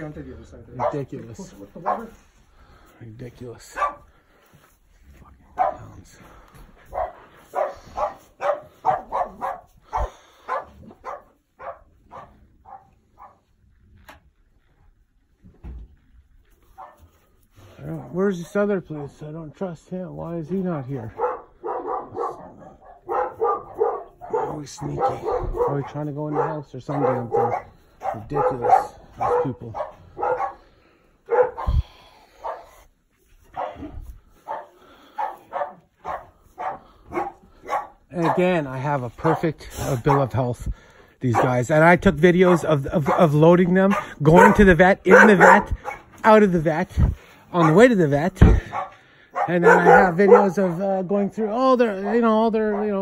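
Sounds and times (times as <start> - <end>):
dog barking: 0.7 - 2.2, 3.7 - 4.1, 5.5 - 6.0, 6.8 - 13.5, 16.8 - 17.1, 21.0 - 32.8, 33.5 - 40.4, 41.3 - 41.6, 42.5 - 46.1, 47.6 - 53.0.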